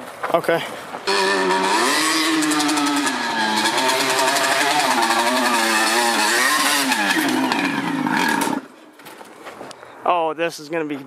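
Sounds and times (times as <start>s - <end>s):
two-stroke engine revving: 1.1s - 8.8s.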